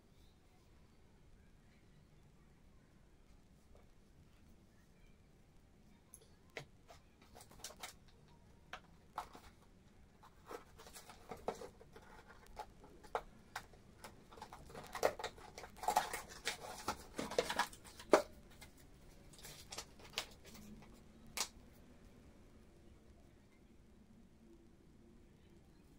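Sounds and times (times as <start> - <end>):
scratchy rustling: 9.0 - 21.5.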